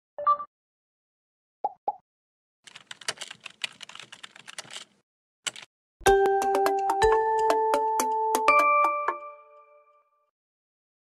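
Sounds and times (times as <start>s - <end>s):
keyboard typing: 2.7s - 5.7s.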